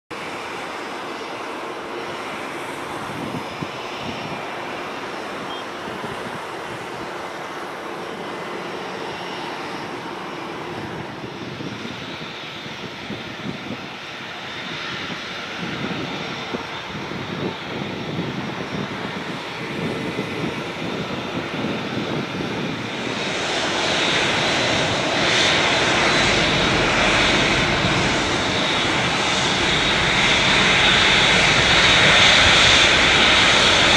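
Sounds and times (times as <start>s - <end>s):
high engine whine: 0.1s - 33.9s
jet engine drone: 0.1s - 33.9s.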